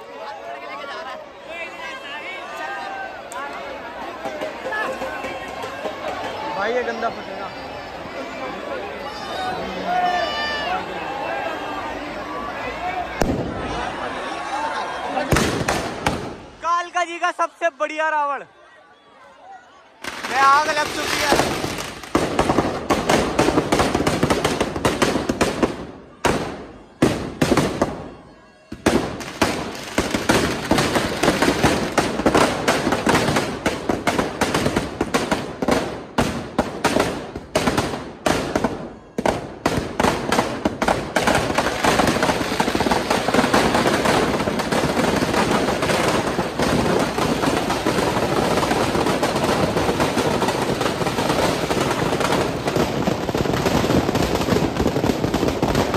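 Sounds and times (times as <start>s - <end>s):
firecrackers crackling: 13.0s - 14.3s, 15.0s - 18.1s, 20.0s - 55.9s.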